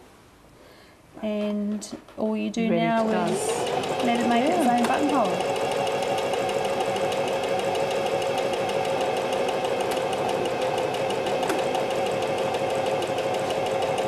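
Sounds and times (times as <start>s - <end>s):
sewing machine motor hum: 2.9s - 14.0s.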